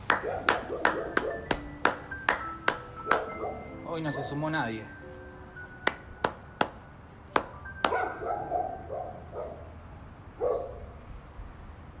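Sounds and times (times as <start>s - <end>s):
person clapping slowly: 0.0s - 3.4s, 5.8s - 8.0s.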